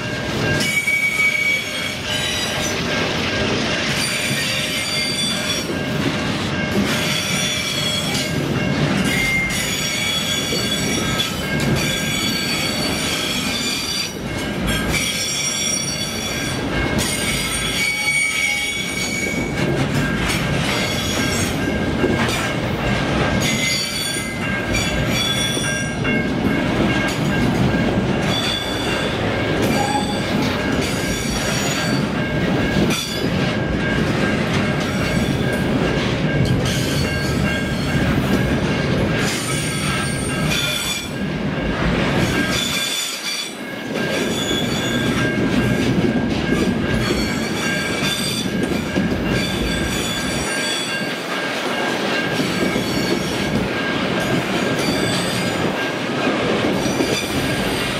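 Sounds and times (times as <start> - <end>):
train wheels rumbling on rail: 0.0 - 57.9
metallic wheel squeal: 0.5 - 2.8, 4.0 - 5.8, 6.9 - 8.4, 9.0 - 19.6, 23.4 - 26.0, 28.2 - 32.1, 44.2 - 45.3, 47.0 - 51.1, 54.7 - 55.6.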